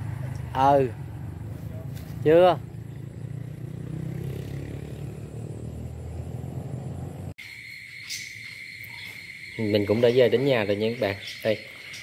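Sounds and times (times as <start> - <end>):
crickets trilling: 2.7 - 12.0.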